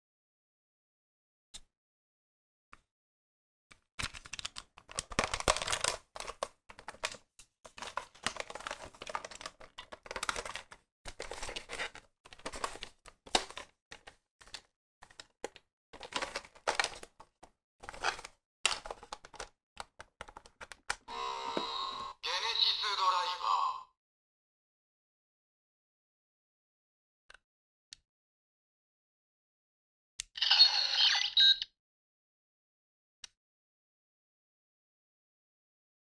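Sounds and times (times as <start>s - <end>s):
toy electronic sound: 21.1s - 23.8s, 30.4s - 31.6s.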